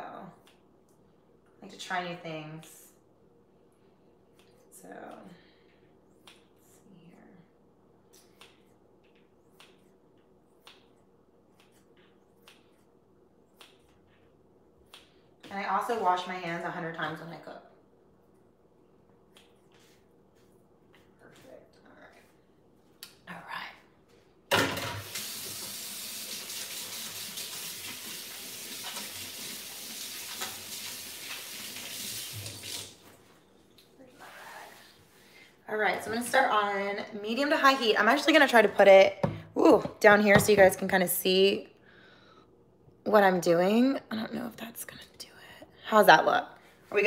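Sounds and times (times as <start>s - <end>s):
tap water splashing into sink: 24.7s - 33.1s.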